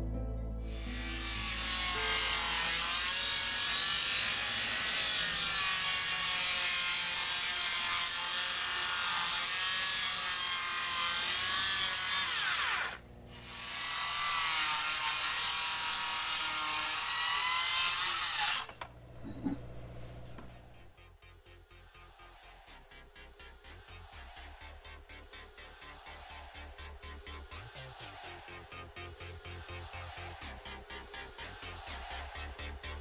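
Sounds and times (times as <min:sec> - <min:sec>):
circular saw cutting: 0:00.6 - 0:19.6.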